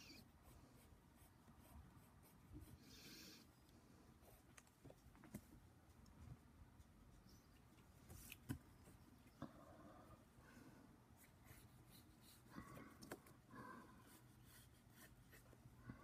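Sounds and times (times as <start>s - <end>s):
pencil scratching on paper: 0.0s - 3.0s, 11.2s - 12.6s, 14.0s - 15.6s.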